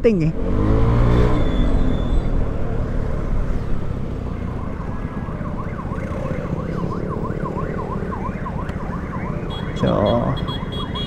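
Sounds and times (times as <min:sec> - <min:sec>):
road noise: 0:00.0 - 0:11.0
scooter engine: 0:00.3 - 0:11.0
electronic siren yelping: 0:03.5 - 0:11.0.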